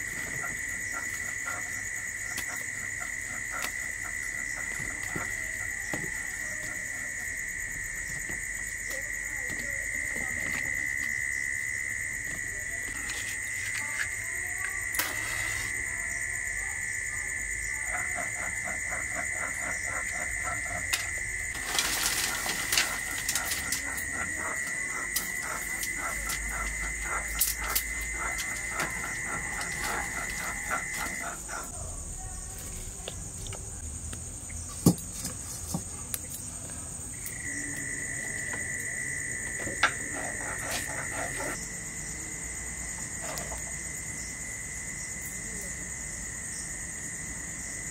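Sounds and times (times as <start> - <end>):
insects trilling: 0.0 - 47.9
sticks clicking and rustling: 20.8 - 31.2.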